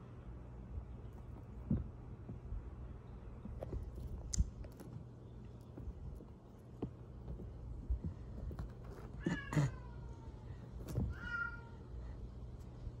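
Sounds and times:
cat meowing: 9.2s - 10.4s, 11.0s - 11.9s.

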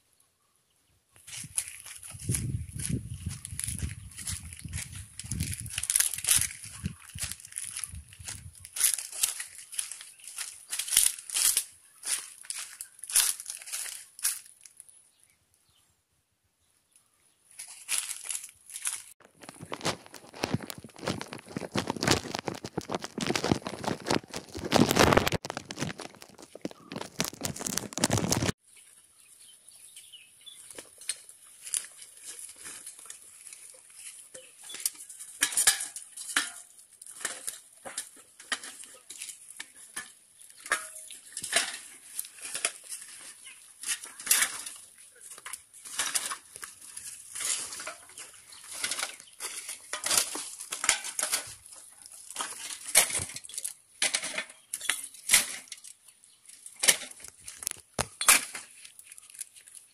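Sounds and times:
plastic and sacking crinkling: 1.2s - 14.9s, 17.6s - 28.6s, 30.6s - 53.8s, 56.5s - 59.9s.

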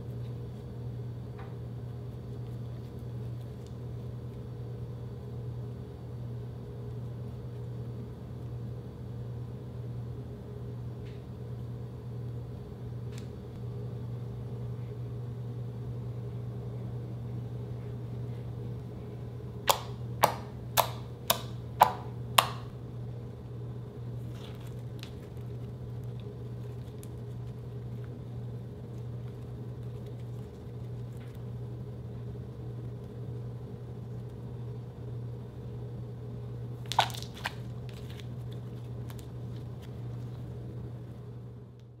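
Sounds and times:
steady low hum: 0.0s - 42.0s
slime squishing: 24.2s - 31.6s, 36.8s - 40.6s
slime popping: 36.8s - 38.3s.

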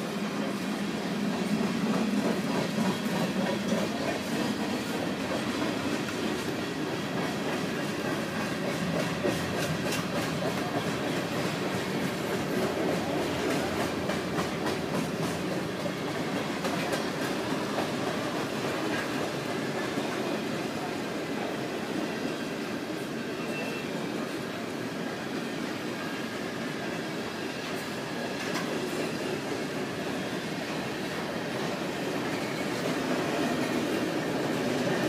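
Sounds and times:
train wheels rumbling on rail: 0.0s - 35.0s
wheels clicking over rail joints: 1.4s - 20.2s.

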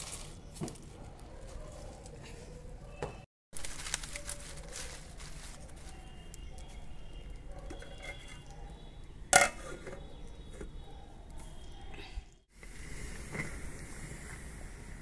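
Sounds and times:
leaves and twigs crackling in fire: 0.0s - 2.0s, 3.5s - 7.4s
metal lid clank: 9.3s - 10.0s.

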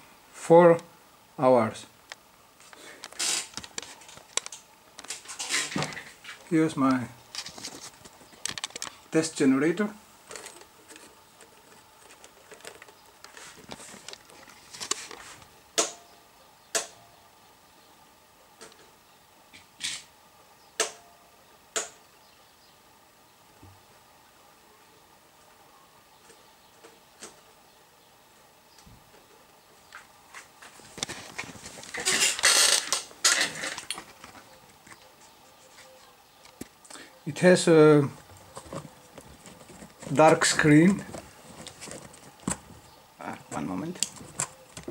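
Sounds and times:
rustling rubbing noise: 7.2s - 9.1s, 10.2s - 15.5s, 30.3s - 36.2s, 38.0s - 44.9s.

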